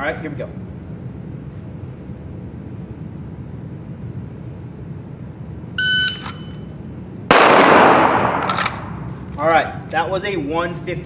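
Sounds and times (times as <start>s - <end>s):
shot timer beep: 5.8s - 6.6s
pistol shot: 7.3s - 9.1s.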